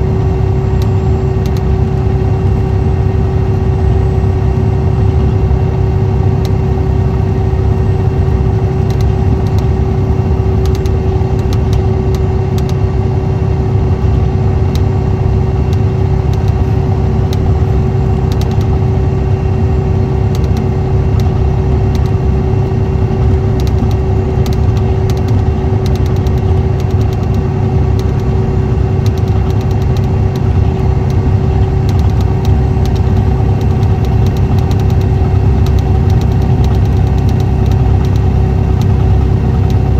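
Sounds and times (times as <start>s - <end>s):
diesel engine drone: 0.0s - 39.9s
engine whine: 0.0s - 39.9s
light ticks: 10.6s - 12.8s, 20.3s - 22.2s, 23.6s - 27.4s, 31.9s - 39.0s.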